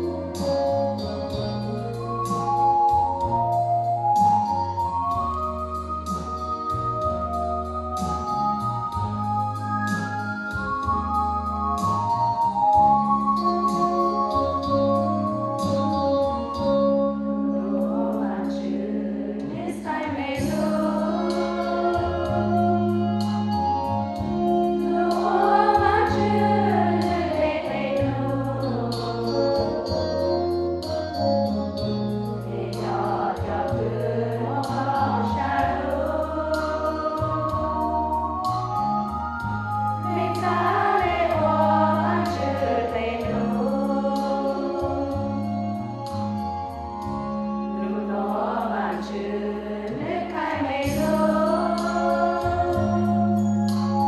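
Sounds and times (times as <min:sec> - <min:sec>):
low accompanying tones: 0:00.0 - 0:54.0
women's choir singing a hymn: 0:17.5 - 0:23.4, 0:24.3 - 0:30.5, 0:32.4 - 0:38.4, 0:40.0 - 0:45.6, 0:47.8 - 0:53.9.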